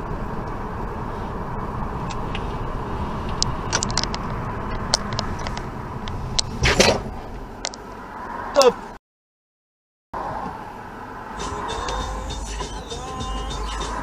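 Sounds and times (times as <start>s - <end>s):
car road and engine noise: 0.0s - 9.0s, 10.2s - 14.0s.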